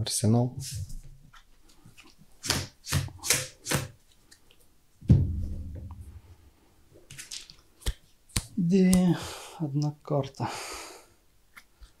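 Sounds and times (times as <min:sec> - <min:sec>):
heavy low knock: 0:05.0 - 0:06.3.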